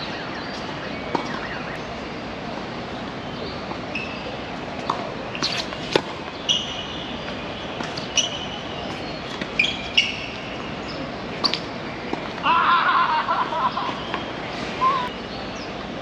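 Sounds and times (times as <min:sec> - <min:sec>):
steady background hiss: 0:00.0 - 0:16.0
shoes squeaking on court: 0:03.8 - 0:12.3.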